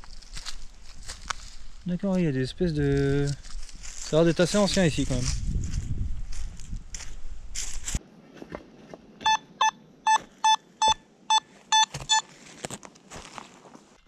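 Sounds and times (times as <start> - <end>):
rustling: 0.0 - 1.9, 3.0 - 9.0
metal detector beeps: 9.2 - 12.3.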